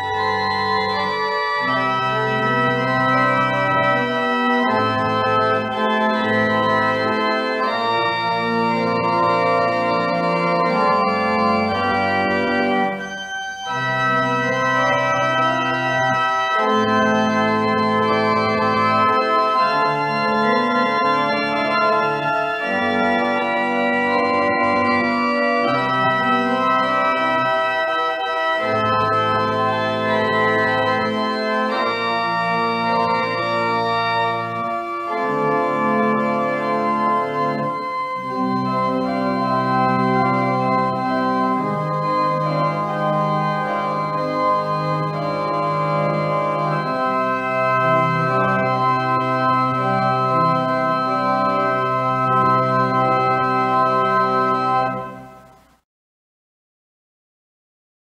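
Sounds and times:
church organ chords: 0:00.0 - 0:55.7.

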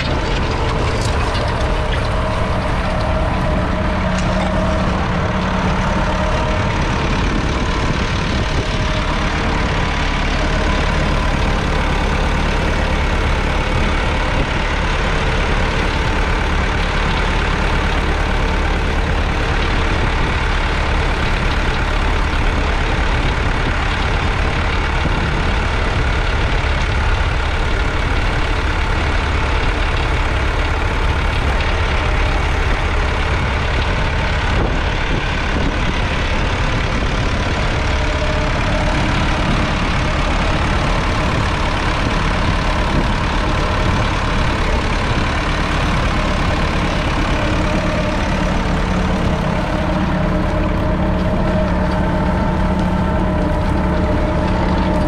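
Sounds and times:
tractor diesel engine under load: 0:00.0 - 0:55.0.

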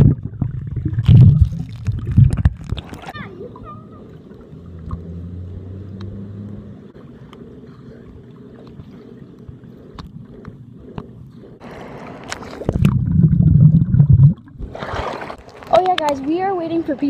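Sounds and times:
bubbles clicking: 0:00.0 - 0:03.2, 0:12.2 - 0:14.7
muffled underwater rumble: 0:00.0 - 0:14.8.

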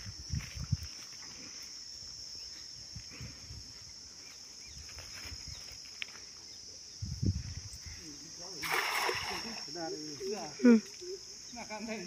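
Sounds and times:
high-pitched insect buzz: 0:00.0 - 0:12.0.

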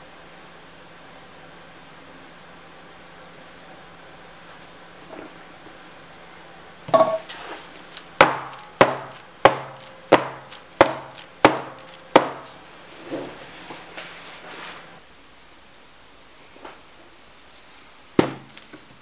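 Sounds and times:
sharp wooden knocks: 0:08.2 - 0:12.4.

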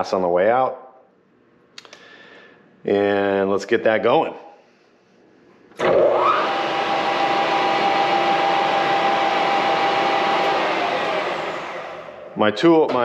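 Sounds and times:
metal lathe whining: 0:05.8 - 0:12.4.

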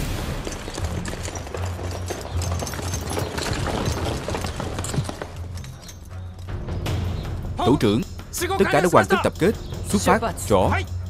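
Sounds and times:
boots marching footsteps: 0:00.0 - 0:07.0
low background music: 0:00.0 - 0:11.0.

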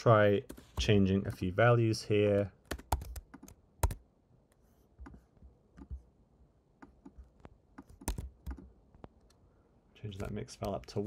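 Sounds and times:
keyboard and mouse clicks: 0:02.3 - 0:04.0, 0:05.0 - 0:06.0, 0:06.8 - 0:09.4, 0:10.2 - 0:11.0.

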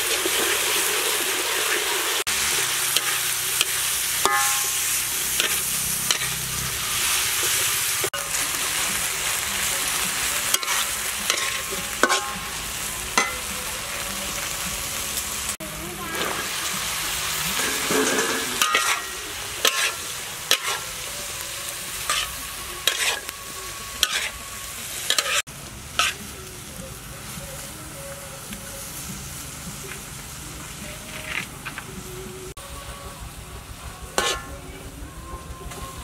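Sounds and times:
food sizzling in a wok: 0:00.0 - 0:36.0
metal spatula scraping wok: 0:00.1 - 0:13.5, 0:16.0 - 0:26.3, 0:34.1 - 0:34.9.

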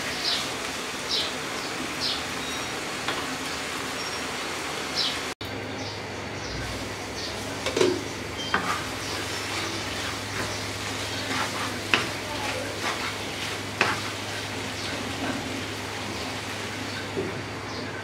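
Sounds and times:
food sizzling: 0:00.0 - 0:05.4, 0:06.6 - 0:17.7
wooden spatula stirring in wok: 0:06.8 - 0:17.5
spatula knocking against pan: 0:11.3 - 0:13.1.

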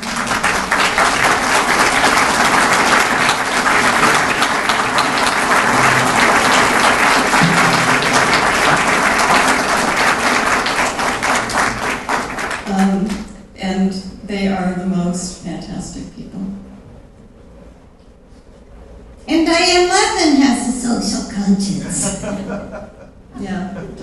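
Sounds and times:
crowd applauding: 0:00.0 - 0:13.2.

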